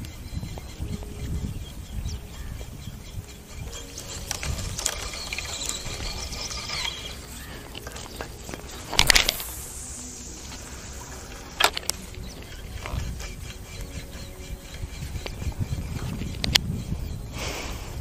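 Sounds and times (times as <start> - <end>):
sharp clicks: 3.7 - 16.6.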